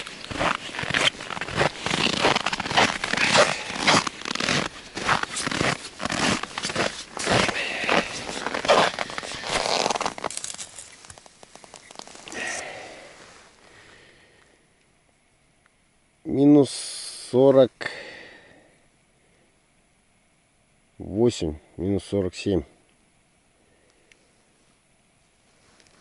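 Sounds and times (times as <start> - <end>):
footsteps crunching in frozen snow: 0.0 - 13.6.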